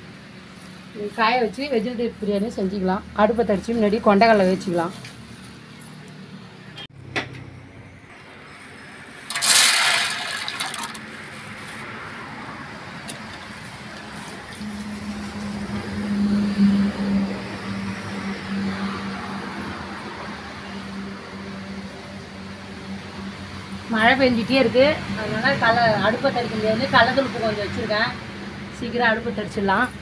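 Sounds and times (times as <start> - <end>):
water pouring and splashing: 9.1 - 11.9
chickpeas rattling into metal pot: 9.3 - 11.2.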